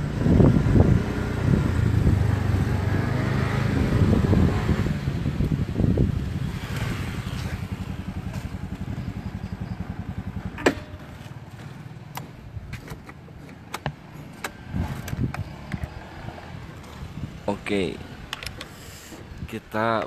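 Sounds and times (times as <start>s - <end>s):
small motorcycle engine running: 5.8s - 12.1s.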